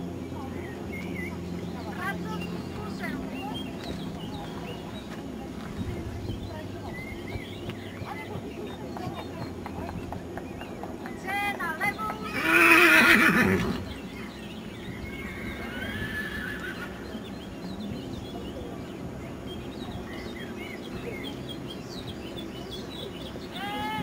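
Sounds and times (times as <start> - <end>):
horse whinnying: 12.3 - 13.8, 15.2 - 16.9.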